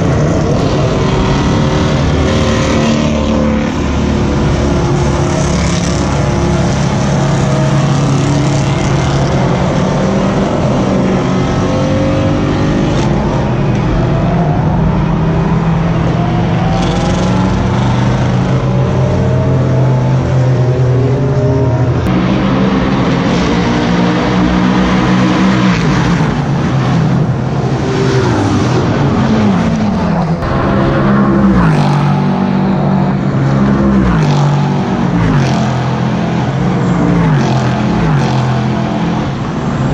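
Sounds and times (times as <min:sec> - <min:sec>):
race cars accelerating: 0:00.0 - 0:39.9.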